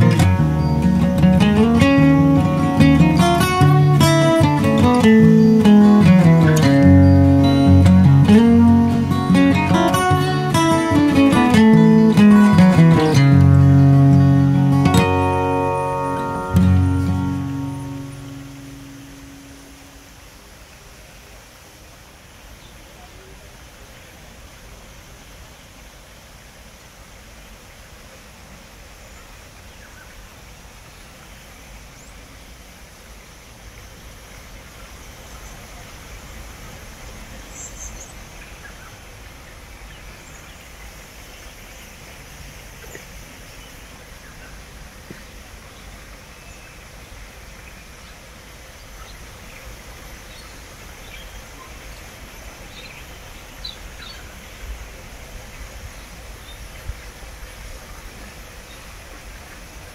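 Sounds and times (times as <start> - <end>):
faint bird chirps: 0.0 - 19.9
soft hiss: 0.0 - 59.9.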